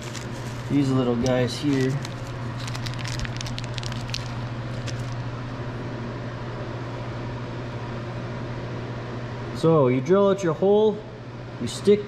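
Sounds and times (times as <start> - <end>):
plastic packaging crinkling: 0.0 - 5.3.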